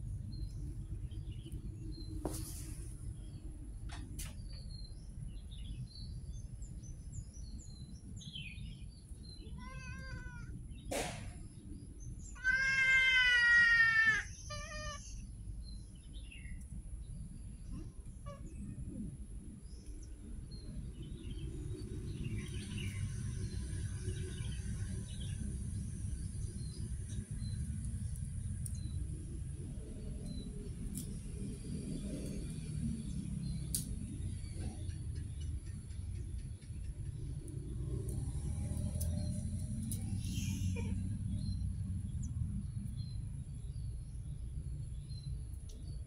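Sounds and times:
cats meowing: 9.4 - 10.6, 12.4 - 15.2.

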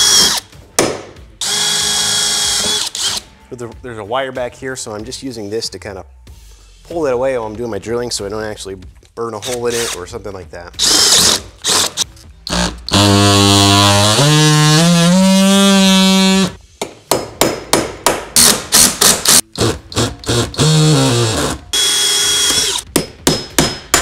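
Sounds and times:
cordless drill drilling metal: 1.4 - 3.2, 10.8 - 16.5, 18.4 - 22.8.

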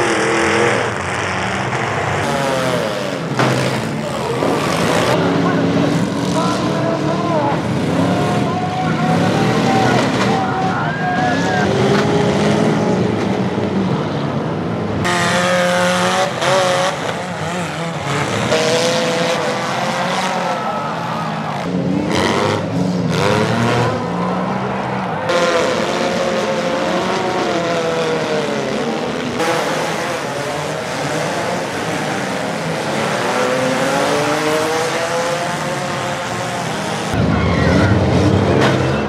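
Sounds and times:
car engines revving hard: 0.0 - 39.0.

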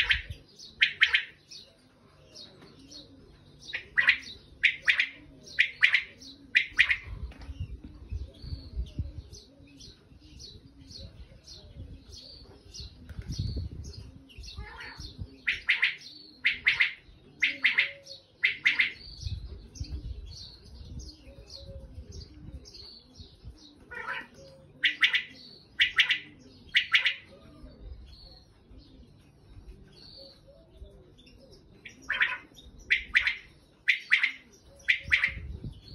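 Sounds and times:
quail calling: 0.0 - 1.4, 3.7 - 7.1, 14.6 - 19.0, 23.8 - 27.4, 31.8 - 35.5.

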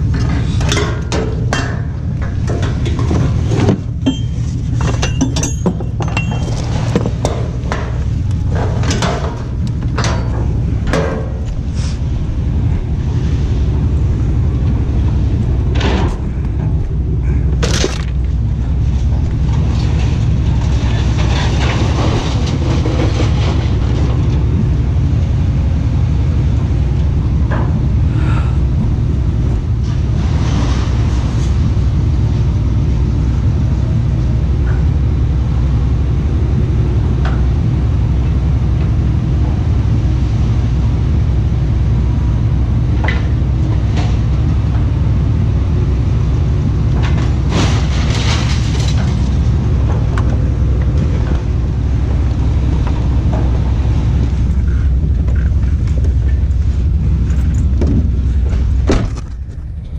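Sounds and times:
rattles and knocks: 0.0 - 28.1, 42.9 - 59.9
vehicle engine rumble: 0.0 - 59.9.

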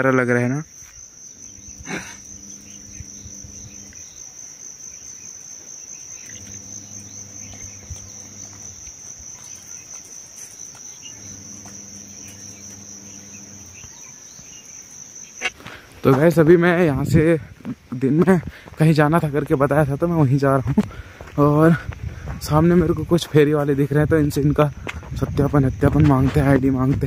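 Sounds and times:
insect trill: 0.0 - 27.0
low hum: 1.4 - 4.0, 6.2 - 9.0, 11.0 - 14.0.

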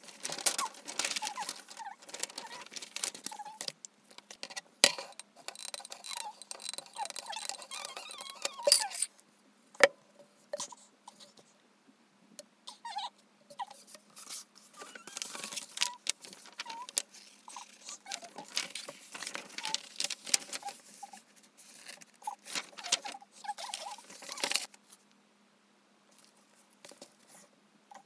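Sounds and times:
paper and cardboard rustling: 0.0 - 9.1, 13.6 - 25.0
small squeaks: 0.0 - 9.2, 12.7 - 24.7.

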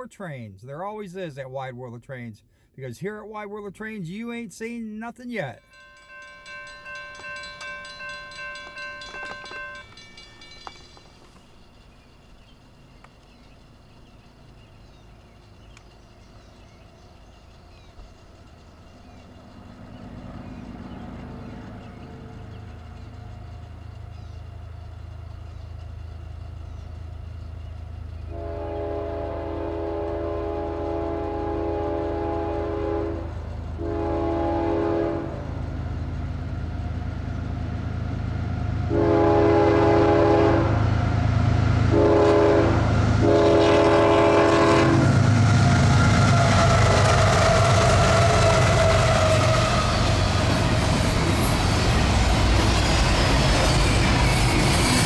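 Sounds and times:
locomotives rumbling past: 5.4 - 55.0
train wheel clatter: 5.7 - 35.0, 41.8 - 55.0
train air horn blasts: 28.3 - 35.6, 38.9 - 40.8, 41.9 - 50.1.

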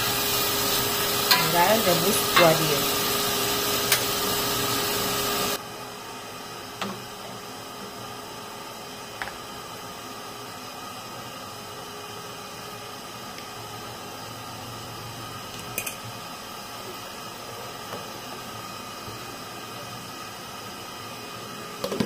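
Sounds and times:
pot of broth hissing: 0.0 - 5.6.

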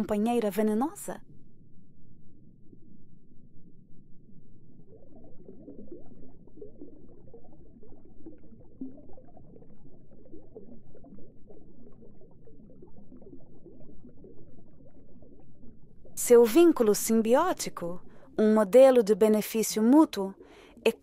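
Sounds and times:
small bubbles: 0.0 - 21.0.

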